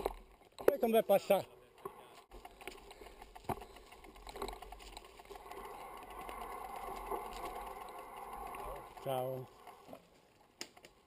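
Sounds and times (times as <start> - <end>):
bike knocks and rattles: 2.3 - 6.6.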